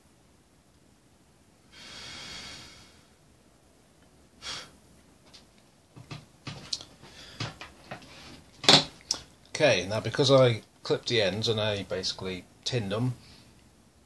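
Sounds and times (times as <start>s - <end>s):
light clicks and knocks: 5.3s - 9.2s.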